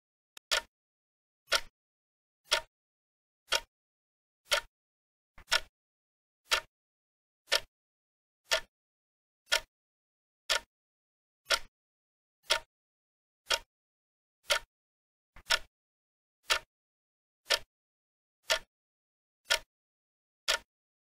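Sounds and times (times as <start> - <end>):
clock ticking: 0.4 - 0.7, 1.5 - 1.7, 2.4 - 2.7, 3.5 - 3.7, 4.5 - 4.7, 5.4 - 5.7, 6.5 - 6.7, 7.5 - 7.7, 8.5 - 8.7, 9.5 - 9.7, 10.5 - 10.7, 11.5 - 11.7, 12.4 - 12.7, 13.5 - 13.7, 14.4 - 14.7, 15.4 - 15.7, 16.4 - 16.7, 17.5 - 17.7, 18.4 - 18.7, 19.5 - 19.7, 20.5 - 20.7.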